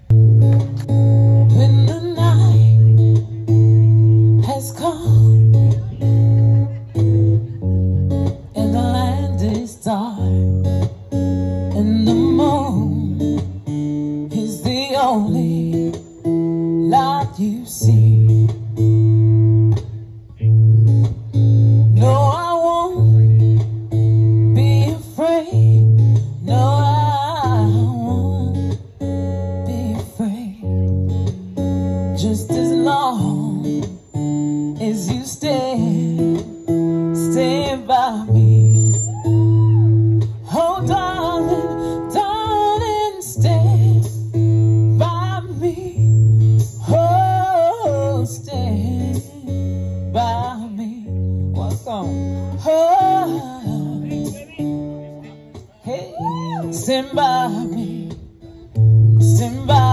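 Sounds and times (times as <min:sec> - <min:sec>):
acoustic guitar: 0:00.0 - 0:59.9
woman singing into a microphone: 0:01.4 - 0:06.4, 0:08.3 - 0:10.9, 0:11.7 - 0:18.8, 0:21.9 - 0:23.4, 0:24.3 - 0:31.2, 0:32.0 - 0:54.4, 0:55.5 - 0:59.9.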